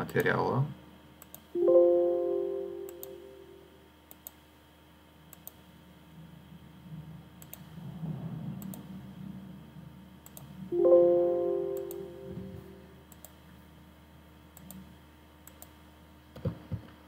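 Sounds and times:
computer mouse clicks: 1.2s - 1.5s, 4.1s - 4.4s, 5.3s - 5.6s, 7.4s - 7.7s, 8.6s - 8.9s, 10.2s - 10.5s, 13.1s - 13.4s, 14.6s - 15.8s
alert chime: 1.6s - 3.6s, 10.8s - 12.8s
soft low rumble: 5.7s - 13.8s.

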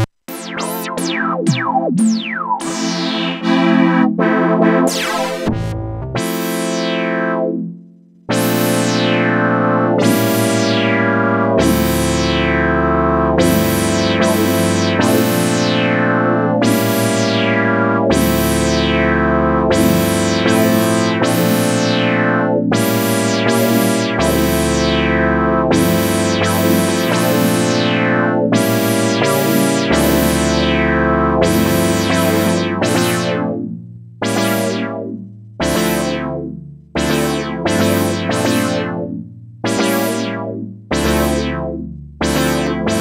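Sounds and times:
synthesizer bass note: 0.0s - 7.6s, 8.3s - 43.0s
synthesizer chords with filter sweep: 0.0s - 43.0s.

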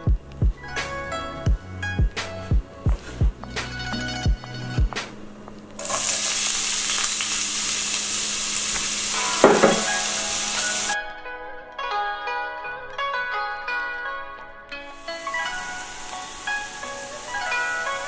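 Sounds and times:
onion sizzling in hot oil: 5.8s - 11.0s, 14.9s - 18.0s.

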